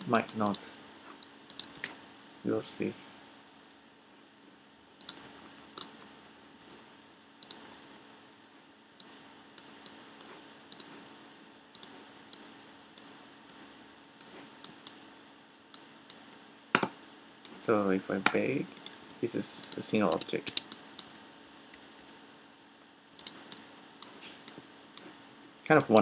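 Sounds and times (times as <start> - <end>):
faint low hum: 0.0 - 26.0
mouse and keyboard clicks: 1.5 - 1.9, 7.4 - 7.6, 18.3 - 22.2, 23.2 - 25.1.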